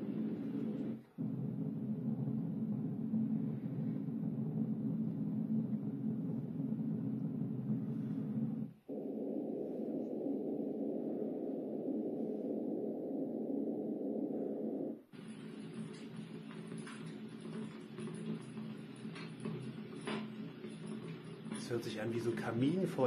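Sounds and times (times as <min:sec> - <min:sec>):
higher steady sound: 0:00.0 - 0:18.4.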